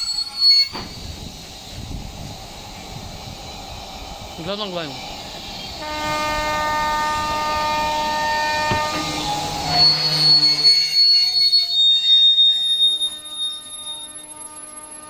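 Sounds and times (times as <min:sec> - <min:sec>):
train wheels squealing on rails: 0:00.0 - 0:15.0
train horn chord: 0:05.8 - 0:10.5.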